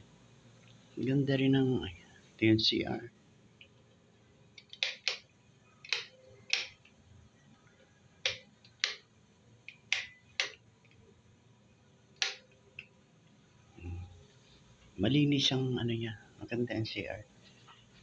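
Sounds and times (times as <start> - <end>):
sharp clicks: 4.6 - 6.9.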